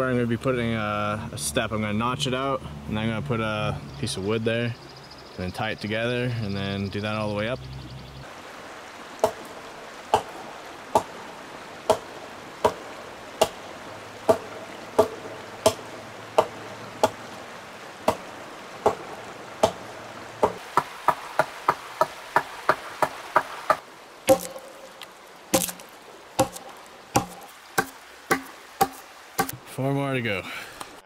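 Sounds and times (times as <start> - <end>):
hatchet chopping a log: 9.2 - 9.5, 10.1 - 10.4, 11.9 - 13.6, 14.3 - 17.2, 18.1 - 19.0, 19.6 - 19.8, 20.4 - 29.6.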